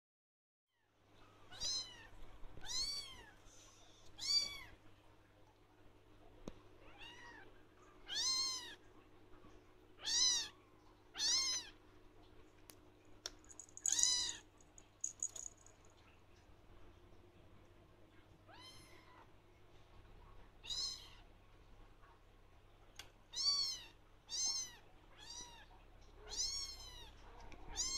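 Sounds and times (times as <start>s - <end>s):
faint steady hum: 0.8s - 27.9s
kitten meowing: 1.5s - 3.4s, 4.2s - 4.7s, 6.8s - 8.8s, 10.0s - 10.6s, 11.2s - 11.8s, 13.8s - 14.4s, 20.6s - 21.2s, 23.3s - 27.1s.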